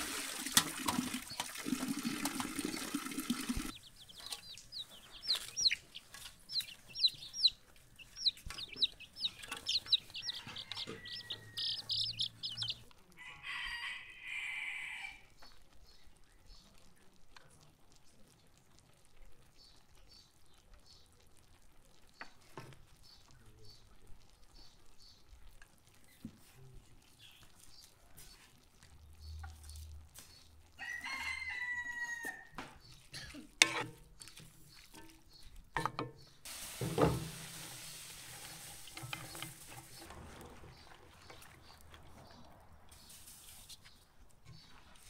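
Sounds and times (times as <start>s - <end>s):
rooster crowing: 10.2s - 12.1s, 13.2s - 15.2s, 30.8s - 32.6s
steady hiss: 36.4s - 40.1s, 42.9s - 43.8s.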